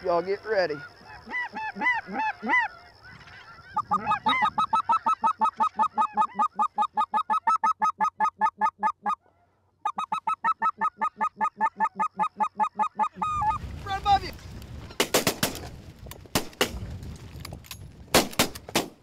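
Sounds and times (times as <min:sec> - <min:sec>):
geese honking overhead: 0:00.1 - 0:13.6
goose call honks: 0:00.7 - 0:13.6.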